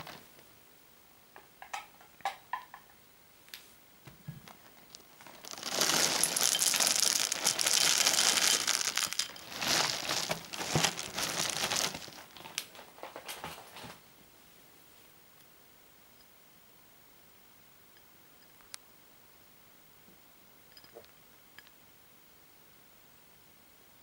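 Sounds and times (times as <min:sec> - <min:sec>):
cereal pouring into glass bowl: 0:04.9 - 0:12.6.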